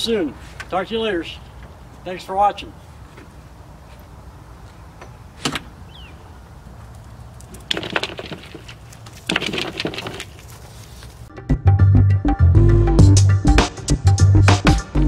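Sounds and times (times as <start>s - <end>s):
clicking and rattling: 6.8s - 10.6s.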